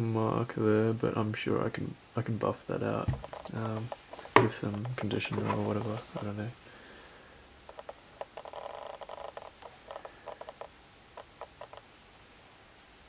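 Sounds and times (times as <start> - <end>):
fingers clicking and tapping shoe: 3.1 - 6.0, 7.7 - 11.8.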